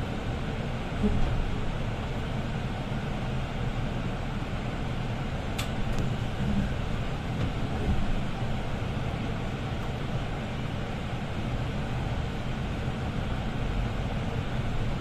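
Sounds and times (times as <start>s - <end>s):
bus engine hum and rolling: 0.0s - 15.0s.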